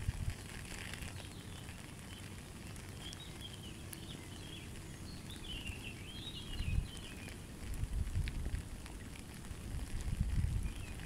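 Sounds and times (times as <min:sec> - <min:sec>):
light rain pattering on water: 0:00.0 - 0:11.0
steady outdoor hiss: 0:00.0 - 0:11.0
wind rumble on microphone: 0:00.0 - 0:11.0
small bird chirping: 0:00.7 - 0:07.7, 0:10.1 - 0:11.0.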